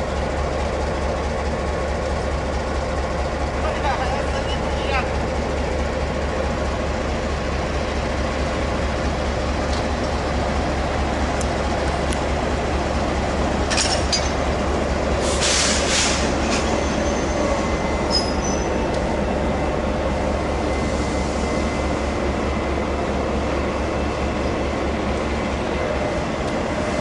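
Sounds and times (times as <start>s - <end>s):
train wheels rumbling on rails: 0.0s - 27.0s
wheel squeals: 16.4s - 18.9s.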